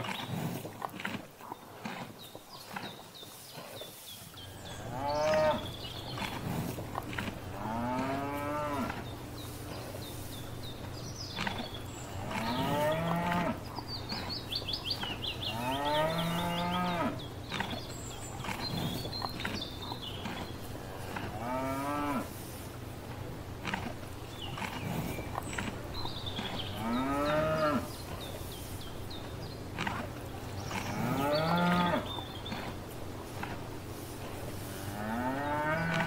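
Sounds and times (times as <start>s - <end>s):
steady low hum: 3.9s - 36.0s
cows mooing: 4.4s - 10.3s, 11.2s - 22.4s, 23.6s - 28.0s, 29.1s - 32.8s, 34.6s - 36.0s.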